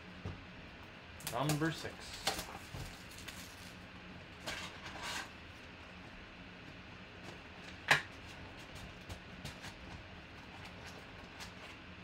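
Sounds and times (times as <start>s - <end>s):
shrink wrap crinkling and tearing: 1.2s - 3.8s.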